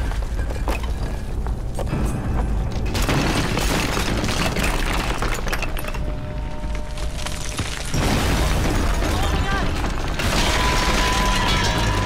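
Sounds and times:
stone crashing and breaking: 2.8 - 12.0.

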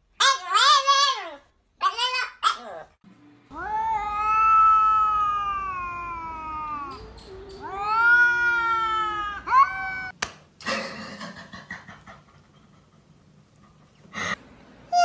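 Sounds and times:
cats yowling: 3.5 - 10.2.

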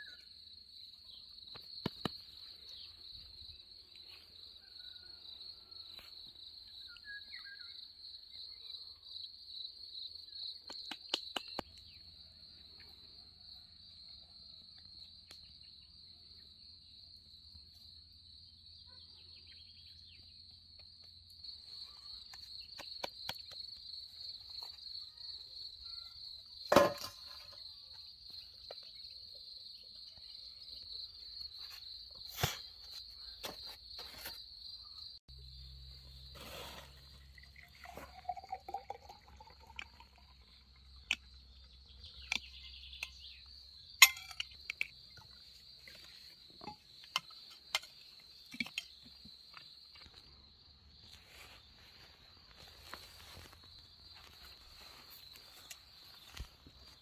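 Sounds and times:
high-pitched insect trill: 21.0 - 50.3.

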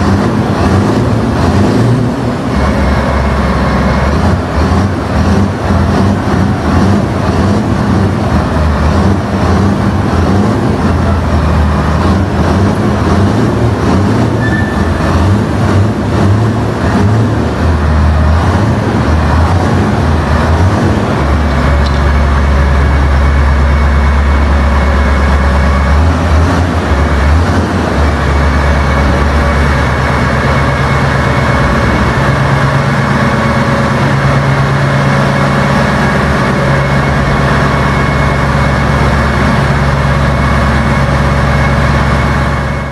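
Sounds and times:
tank diesel engine revving: 0.0 - 42.9.

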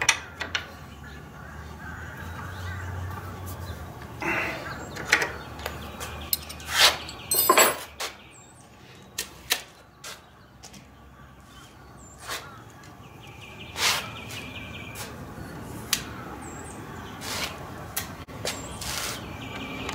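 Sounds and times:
tools clicking and knocking: 5.0 - 7.9.

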